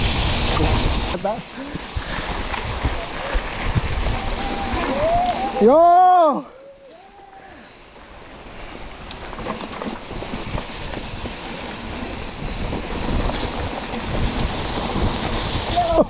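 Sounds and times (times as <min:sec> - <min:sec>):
wind rushing over microphone: 0:00.0 - 0:05.8, 0:10.0 - 0:16.0
bike tyres on dirt: 0:00.0 - 0:16.0
bike knocks and rattles: 0:09.2 - 0:16.0.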